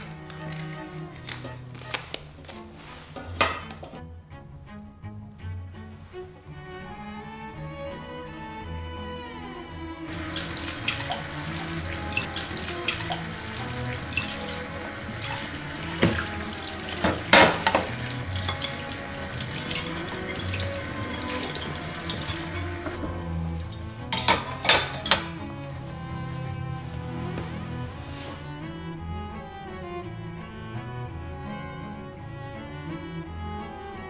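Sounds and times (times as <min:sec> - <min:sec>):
dishes clinking: 0:03.2 - 0:04.0, 0:10.1 - 0:14.6, 0:15.2 - 0:25.4
tap running into a steel sink: 0:10.1 - 0:25.3
plates knocking in a dish rack: 0:16.9 - 0:18.8, 0:24.1 - 0:25.3.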